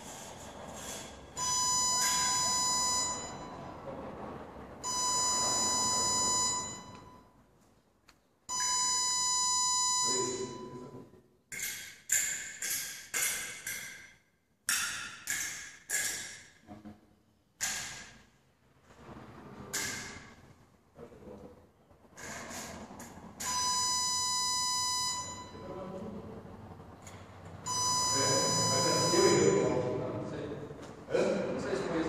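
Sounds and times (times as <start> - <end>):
electronic scoring beep: 1.4 - 3.8, 4.8 - 7.3, 8.5 - 10.8, 23.4 - 25.7, 27.6 - 30.0.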